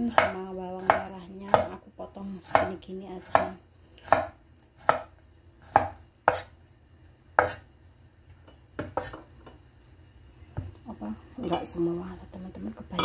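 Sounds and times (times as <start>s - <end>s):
cleaver chopping on cutting board: 0.1s - 1.7s, 2.5s - 2.7s, 3.3s - 5.1s, 5.7s - 6.5s, 7.4s - 7.6s.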